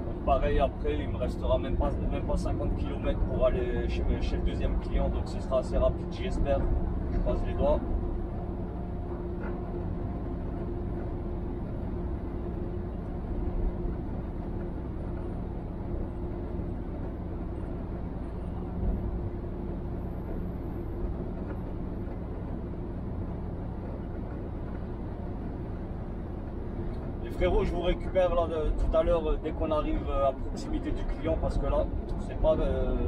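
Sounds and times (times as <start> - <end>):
truck engine and tyres droning: 0.0 - 33.0.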